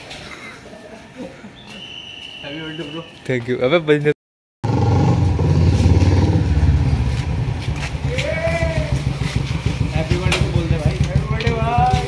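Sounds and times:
motorcycle engine running: 4.6 - 12.0
person shouting: 8.1 - 9.0.

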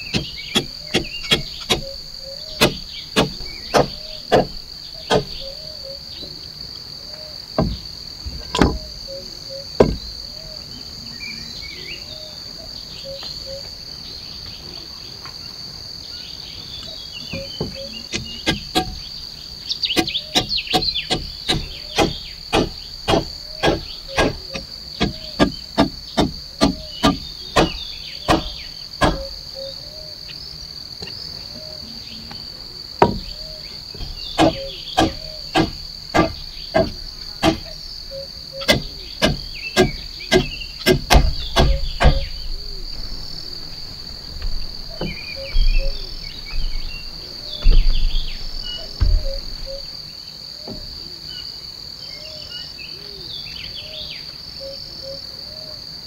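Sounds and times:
high-pitched insect chorus: 0.0 - 56.0
hand tool knocking: 0.1 - 2.0, 2.6 - 5.4, 17.3 - 19.0, 20.0 - 29.3, 33.0 - 33.4, 34.0 - 37.8, 38.6 - 42.3.

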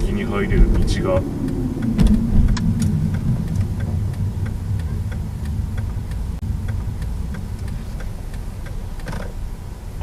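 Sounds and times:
car engine and tyres rumbling: 0.0 - 10.0
turn signal ticking: 0.0 - 10.0.

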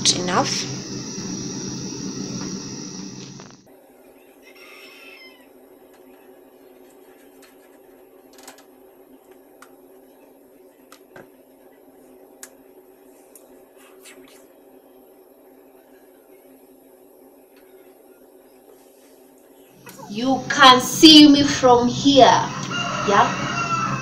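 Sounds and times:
low hum: 0.0 - 3.7
rooster crowing: 4.4 - 5.5, 22.4 - 24.0.

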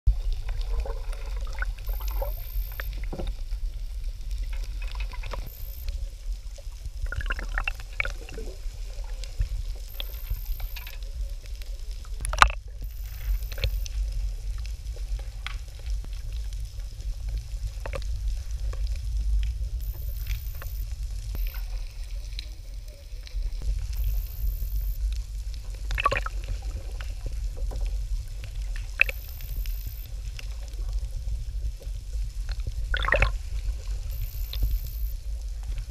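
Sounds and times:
muffled underwater rumble: 0.1 - 35.9
bubbly bursts: 0.6 - 2.8, 7.0 - 8.8, 25.8 - 26.7, 32.8 - 33.4.

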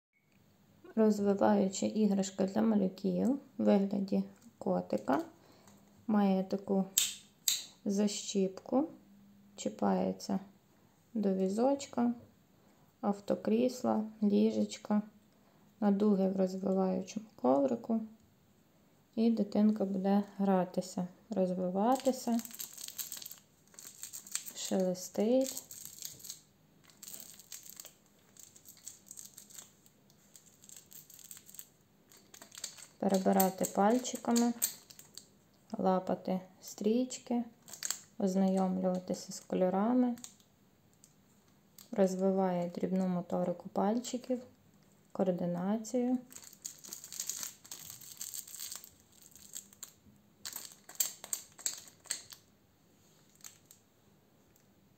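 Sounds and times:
crinkle toy rustling: 21.8 - 35.3, 37.6 - 38.2, 46.2 - 53.8.

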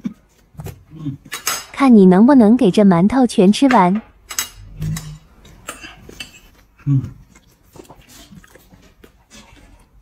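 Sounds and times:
chewing mouth sounds: 4.6 - 10.0.

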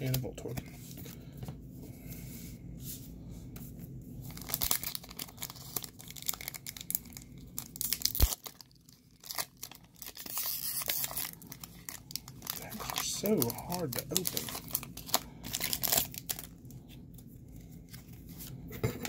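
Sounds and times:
foil pack crinkling: 4.3 - 16.8.

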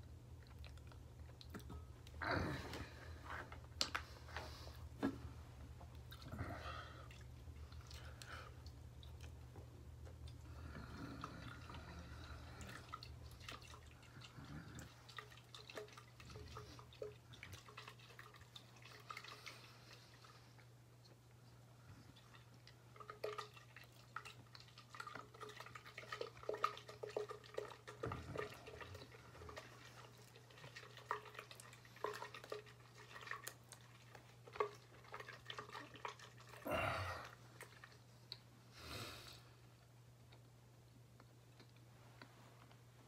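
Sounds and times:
person chewing and swallowing: 0.0 - 19.4, 40.1 - 42.8.

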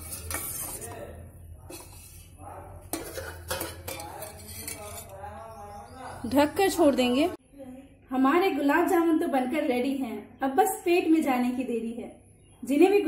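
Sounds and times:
steel spoon clinking against pot: 0.0 - 1.1, 2.9 - 5.2.

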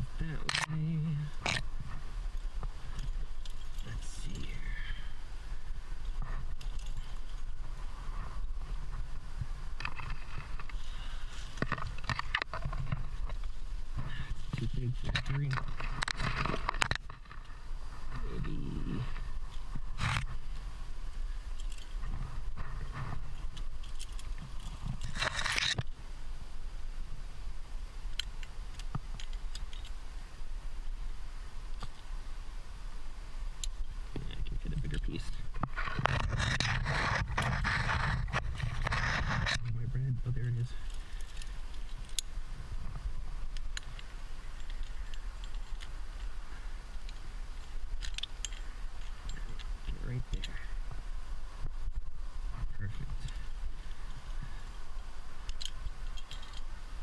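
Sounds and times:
scraping rustle: 0.0 - 26.0, 33.4 - 57.0
low steady rumble: 0.0 - 57.0
climbing gear clinking: 0.3 - 5.2, 6.0 - 9.1, 9.7 - 20.4, 21.3 - 25.9, 28.1 - 30.0, 40.4 - 42.4, 43.5 - 50.8, 55.4 - 57.0
metal carabiners clinking: 2.3 - 4.8, 6.0 - 7.6, 21.5 - 22.0, 23.3 - 25.9, 28.1 - 30.0, 43.8 - 46.3, 46.9 - 50.7, 55.4 - 56.7.

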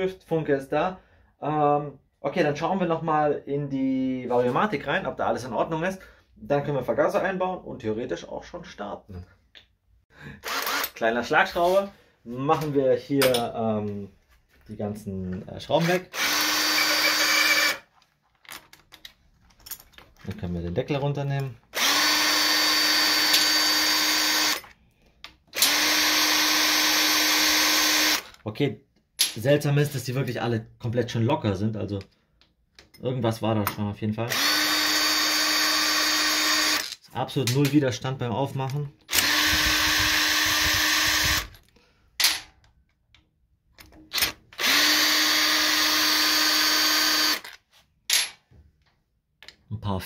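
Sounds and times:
impact wrench motor whine: 10.4 - 11.0, 16.1 - 17.8, 21.8 - 24.7, 25.6 - 28.3, 34.3 - 36.9, 39.1 - 41.6, 44.2 - 47.6.

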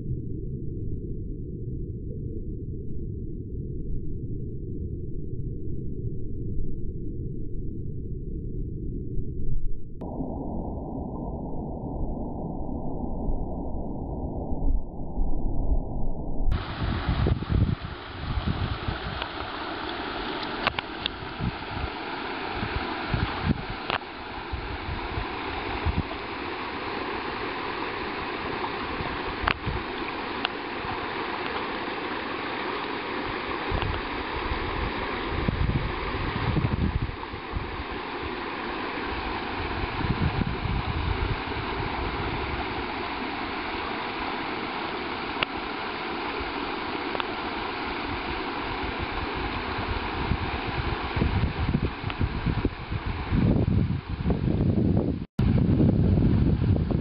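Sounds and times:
low rumbles: 0.0 - 31.8
creek water running over rocks: 16.6 - 53.1.

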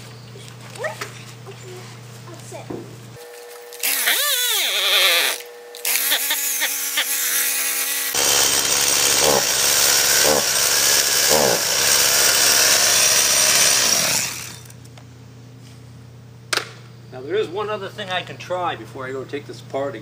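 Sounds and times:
chainsaw engine revving unevenly: 8.1 - 14.7.

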